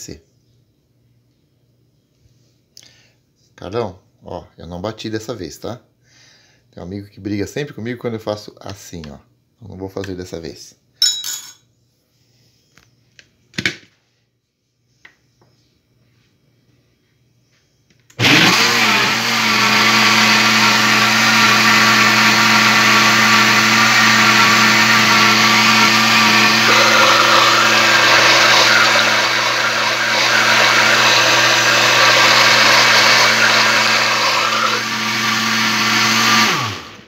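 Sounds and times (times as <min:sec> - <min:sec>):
blender motor running: 0:18.1 - 0:37.0.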